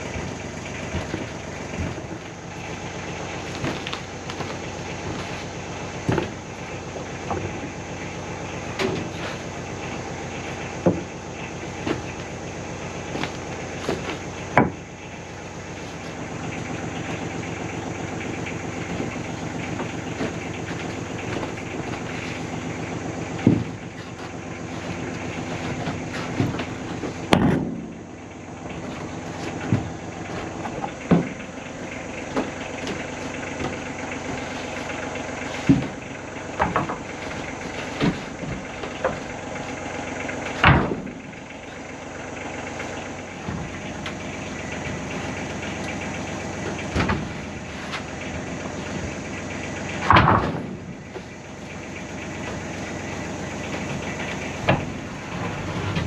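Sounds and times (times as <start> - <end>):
steady humming drone: 0.0 - 56.0
wooden boards knocking and clattering: 0.0 - 56.0.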